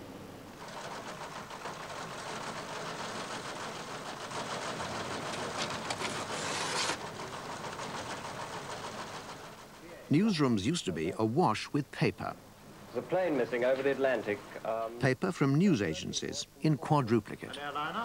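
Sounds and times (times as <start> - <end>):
teleprinters clattering: 0.6 - 10.4.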